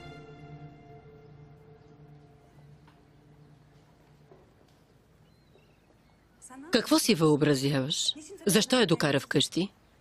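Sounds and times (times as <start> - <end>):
quiet sad background music: 0.0 - 4.3.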